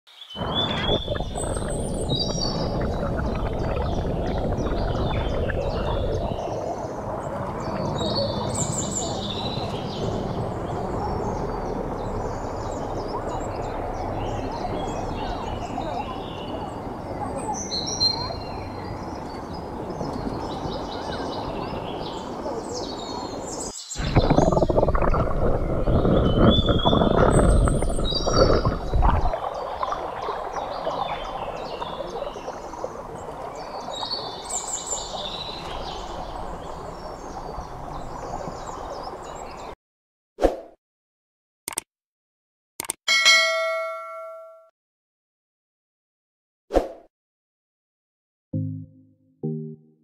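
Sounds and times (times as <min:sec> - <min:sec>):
water flowing over stones: 0:00.4 - 0:08.0, 0:24.0 - 0:39.5
birds chirping and whistling: 0:25.9 - 0:29.0.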